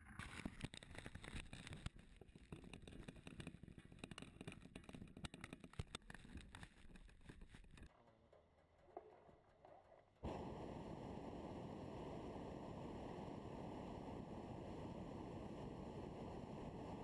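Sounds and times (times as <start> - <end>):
small clicks: 0.0 - 7.9.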